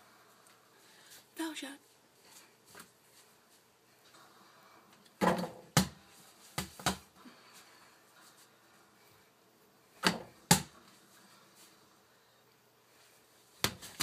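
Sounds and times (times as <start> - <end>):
basketball thudding: 10.0 - 10.8.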